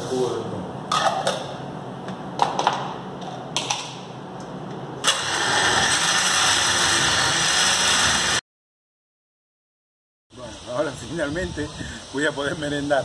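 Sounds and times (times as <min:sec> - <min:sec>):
blender motor running: 0:05.0 - 0:08.4.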